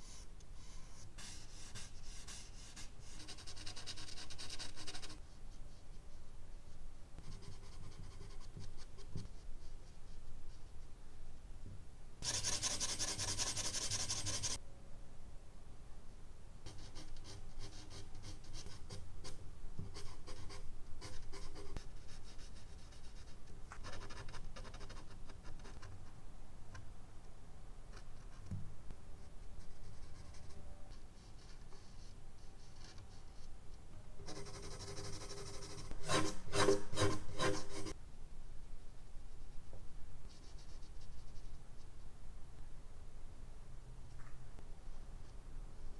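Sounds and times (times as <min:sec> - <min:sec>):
pencil scratching on paper: 0:12.2 - 0:14.6, 0:34.3 - 0:38.0.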